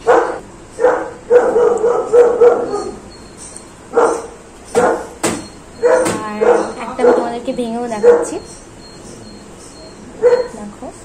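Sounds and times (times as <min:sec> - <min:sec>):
dog barking: 0:00.0 - 0:03.1, 0:03.9 - 0:05.2, 0:05.8 - 0:08.5, 0:10.2 - 0:10.7.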